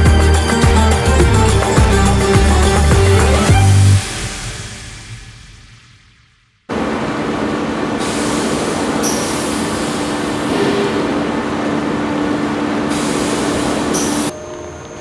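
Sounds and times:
gas burner rushing: 6.7 - 14.3.

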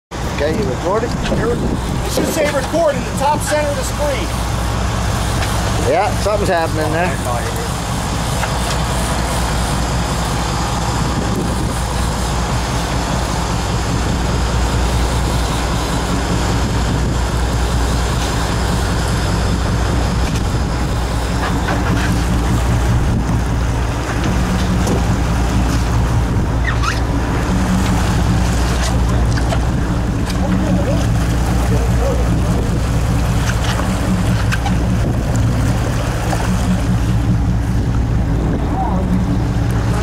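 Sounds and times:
boat engine running: 0.1 - 40.0
sea washing around hull: 0.1 - 40.0
wind on microphone: 1.0 - 2.9, 10.5 - 40.0.

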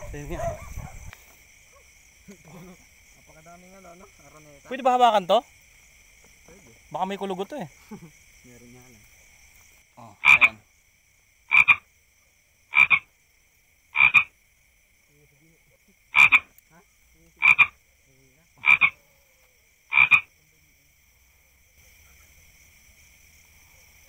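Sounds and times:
toad croaking: 9.9 - 10.8, 11.4 - 12.0, 12.6 - 13.2, 13.8 - 14.4, 15.6 - 20.5.

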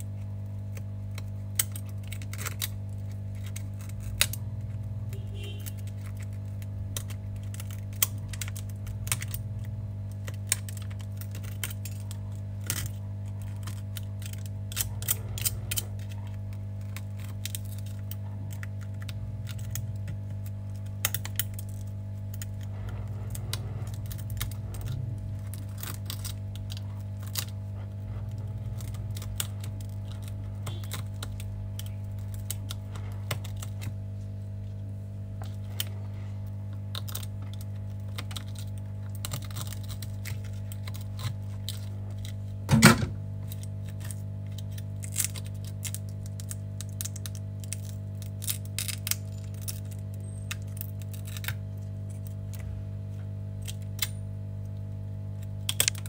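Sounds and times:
glass cracking and chipping: 0.7 - 4.8, 5.6 - 9.4, 10.0 - 22.7, 23.3 - 33.9, 36.8 - 42.5, 43.4 - 52.6, 53.6 - 54.3, 55.4 - 56.0.

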